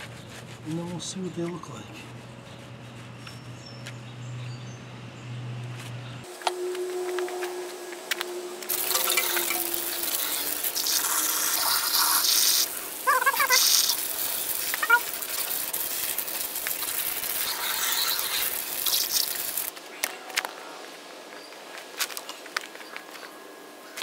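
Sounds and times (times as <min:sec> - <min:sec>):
hose water spraying: 0:06.3 - 0:19.7.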